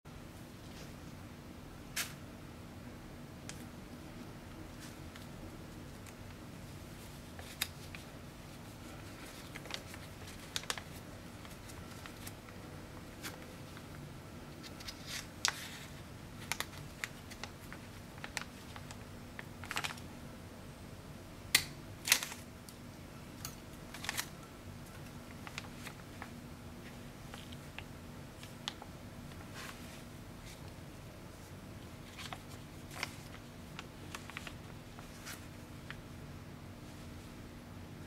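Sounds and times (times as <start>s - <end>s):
steady low hum: 0.1s - 38.0s
plastic bag crinkling: 7.3s - 14.0s, 14.6s - 20.1s, 23.9s - 30.6s, 31.9s - 36.0s.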